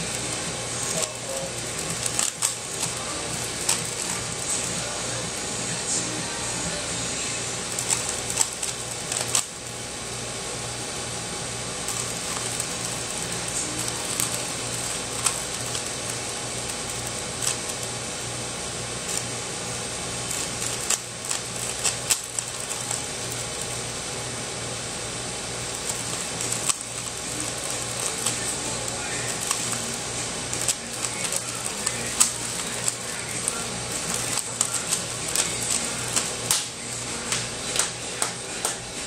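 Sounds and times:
puzzle cube clicking as turned: 0:01.8 - 0:04.2, 0:07.8 - 0:09.5, 0:13.8 - 0:16.1, 0:16.9 - 0:17.8, 0:20.3 - 0:23.1, 0:25.8 - 0:28.6, 0:29.3 - 0:29.9, 0:30.6 - 0:36.7.

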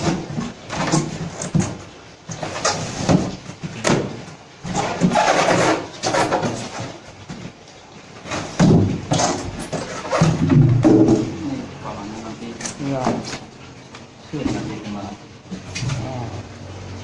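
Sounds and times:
foam scraping: 0:00.0 - 0:13.5
sharp knocks of foam boxes: 0:02.4 - 0:05.2, 0:08.3 - 0:11.4
foam lids rubbing on boxes: 0:04.6 - 0:07.0.

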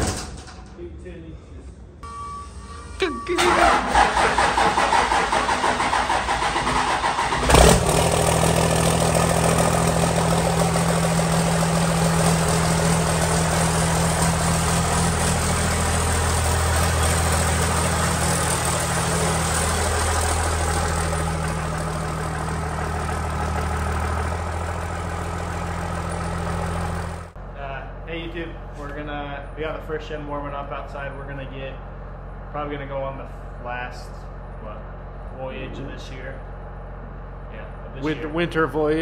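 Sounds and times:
diesel engine cranking and idling: 0:03.0 - 0:33.2.

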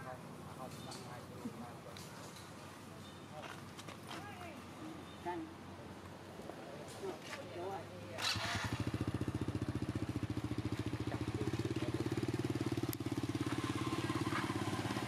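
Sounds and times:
small engine idling: 0:08.2 - 0:15.0.

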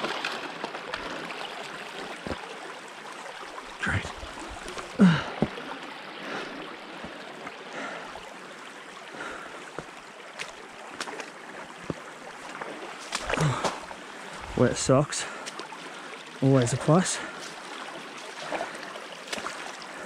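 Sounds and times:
footsteps on plank and splashes: 0:00.0 - 0:02.7, 0:03.9 - 0:08.3, 0:09.1 - 0:20.0
shallow river running: 0:00.0 - 0:20.0
person muttering: 0:05.0 - 0:05.4
person grunting: 0:05.0 - 0:05.5, 0:13.4 - 0:13.8.

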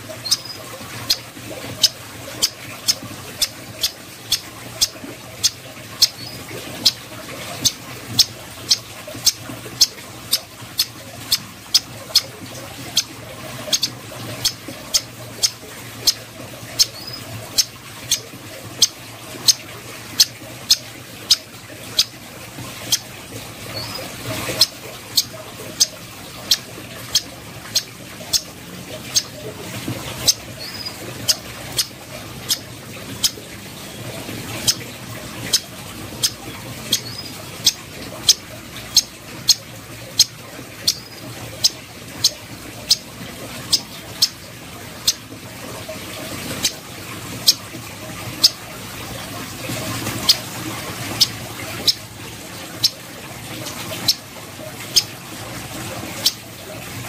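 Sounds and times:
bird clicking calls: 0:00.1 - 0:19.6, 0:23.8 - 0:29.3.

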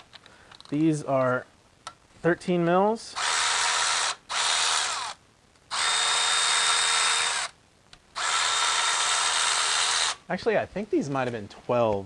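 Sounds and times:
cordless ratchet whirring: 0:03.2 - 0:07.6, 0:08.2 - 0:10.2.

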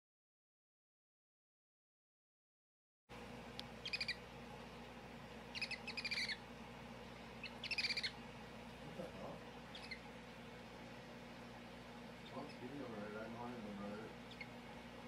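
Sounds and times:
baby hedgehog squeaking: 0:03.8 - 0:04.3, 0:05.5 - 0:06.4, 0:07.4 - 0:08.2, 0:09.6 - 0:10.2, 0:12.2 - 0:12.7, 0:14.2 - 0:14.6.

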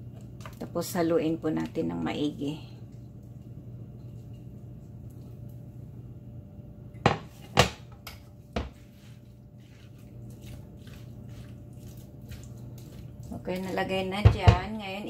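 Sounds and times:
low steady hum: 0:00.0 - 0:15.0
spatula and dish knocking on pan: 0:07.0 - 0:08.8, 0:14.2 - 0:14.8.

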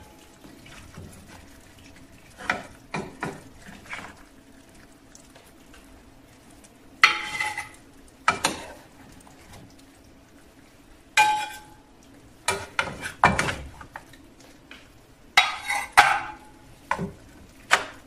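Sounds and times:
utensils scraping in a frying pan: 0:02.3 - 0:04.2, 0:07.0 - 0:09.0, 0:11.2 - 0:11.8, 0:12.4 - 0:13.9, 0:15.4 - 0:18.0
utensils clinking on a plate: 0:15.4 - 0:17.1.

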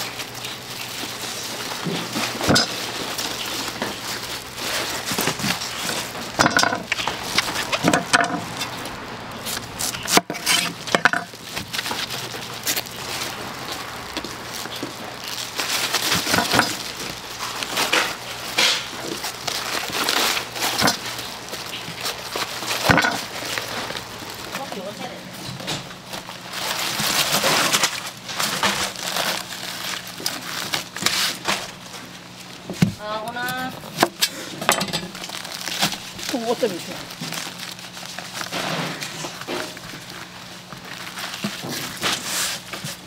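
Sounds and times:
dishes and utensils clinking: 0:02.4 - 0:02.9, 0:05.9 - 0:08.7, 0:22.8 - 0:23.3.

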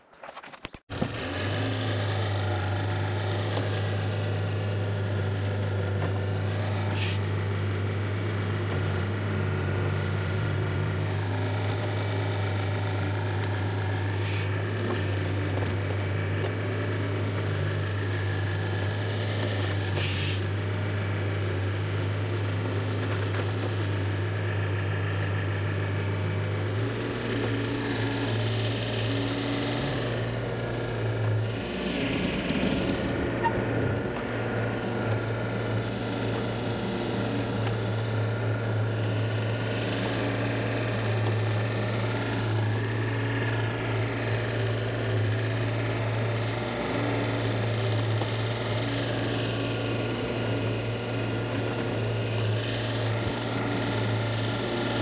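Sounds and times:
diesel excavator engine running: 0:00.0 - 0:55.0
short hisses: 0:06.9 - 0:07.2, 0:20.0 - 0:20.4.

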